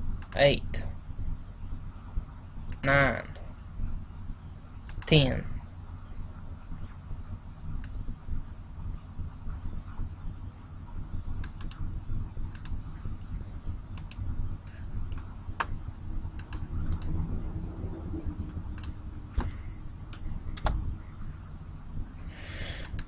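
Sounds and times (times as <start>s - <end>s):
low steady hum: 0.0s - 23.0s
computer mouse clicks: 0.2s - 0.4s, 4.8s - 5.2s, 7.8s - 8.0s, 11.4s - 11.8s, 12.5s - 15.8s, 16.4s - 17.2s, 18.4s - 20.8s, 22.8s - 23.0s
computer keyboard clicks: 11.4s - 11.8s, 14.0s - 14.2s, 16.4s - 17.2s.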